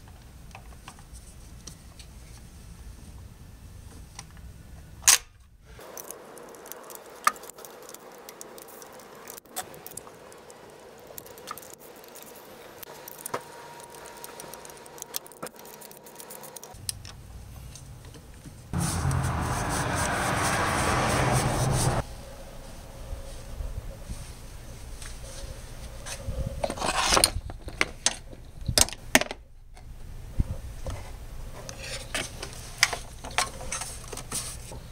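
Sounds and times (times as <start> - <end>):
loud steady rushing noise: 18.8 - 22.0.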